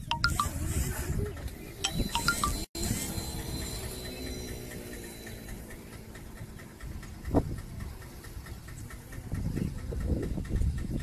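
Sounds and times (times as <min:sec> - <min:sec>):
faint rapid ticking: 0:03.8 - 0:11.0
wind buffeting microphone: 0:06.2 - 0:11.0.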